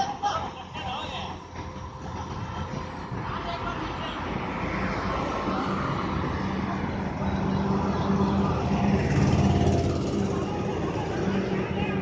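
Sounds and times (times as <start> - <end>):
diesel engine running: 6.8 - 12.0.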